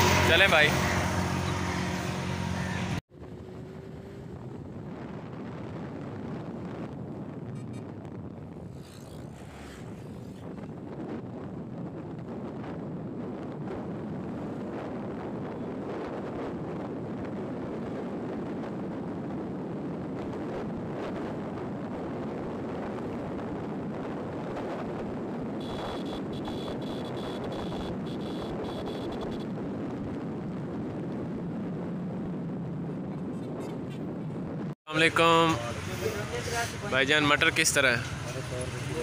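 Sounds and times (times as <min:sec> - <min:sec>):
motorcycle road and engine noise: 0:00.0 - 0:39.0
wind rushing over microphone: 0:00.0 - 0:39.0
steady high tone: 0:25.6 - 0:29.4.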